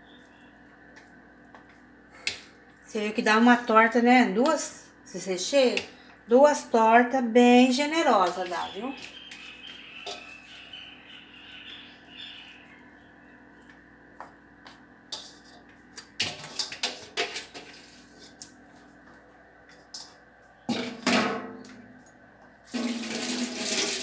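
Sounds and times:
faint steady hum: 0.0s - 23.2s
soft rustling of vegetables: 7.6s - 10.7s.

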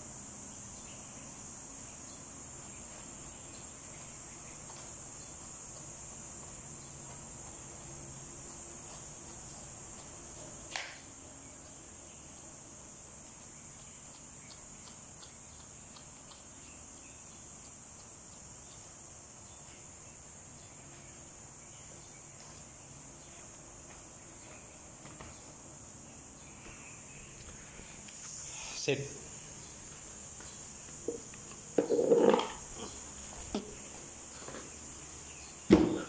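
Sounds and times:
steady high-pitched hiss: 0.0s - 36.0s
brush combing dog fur: 2.6s - 10.6s
sharp click: 10.7s - 11.0s.

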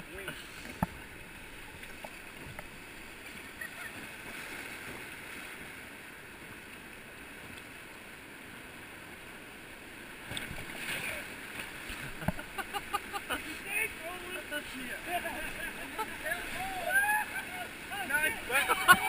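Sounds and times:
whitewater rapids rushing: 10.7s - 19.0s.

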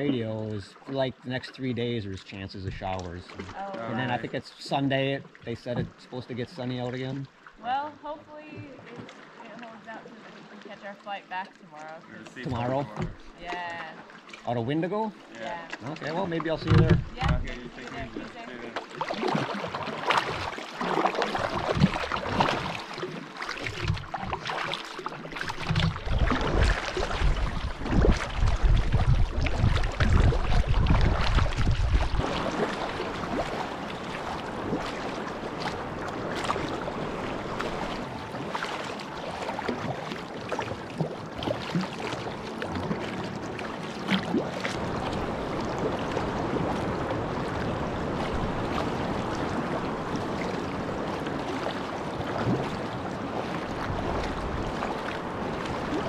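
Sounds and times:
paddle dipping and splashing: 0.0s - 56.0s
water lapping against hull: 0.0s - 56.0s
wind buffeting microphone: 25.4s - 38.9s, 44.2s - 56.0s.

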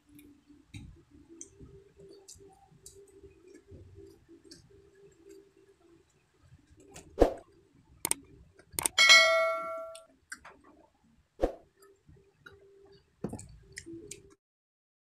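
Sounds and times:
sharp clicks: 8.0s - 9.0s
bright bell ding: 8.9s - 10.0s.

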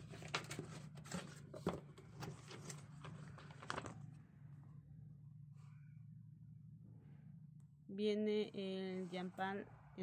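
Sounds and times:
paper and cardboard rustling: 0.0s - 4.1s
steady low hum: 1.8s - 10.0s.

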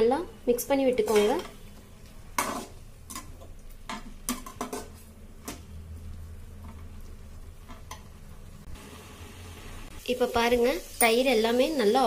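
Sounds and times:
metal spatula scraping a pan: 2.4s - 3.3s.

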